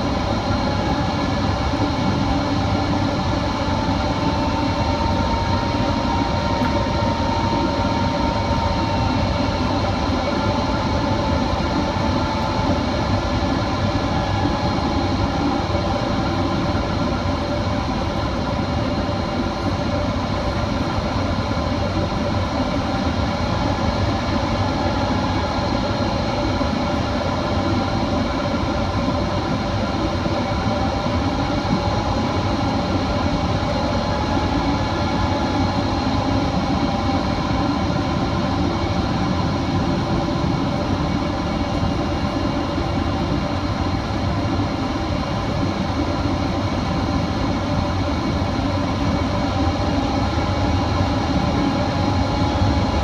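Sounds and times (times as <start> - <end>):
steady whining tones: 0.0 - 53.0.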